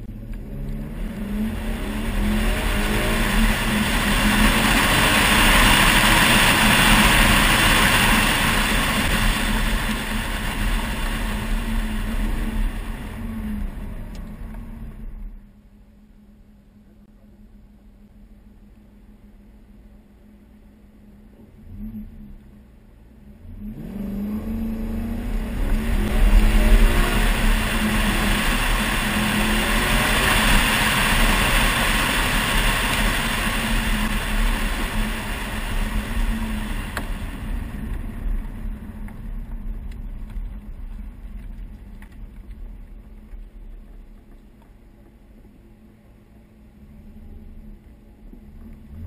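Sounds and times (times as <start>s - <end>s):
car engine accelerating: 0.0s - 49.0s.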